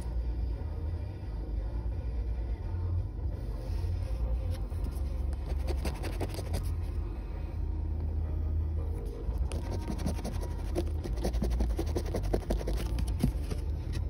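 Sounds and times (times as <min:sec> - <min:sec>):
coin scratching a ticket: 0:05.4 - 0:06.7, 0:09.5 - 0:13.3
low rumble: 0:06.3 - 0:09.7.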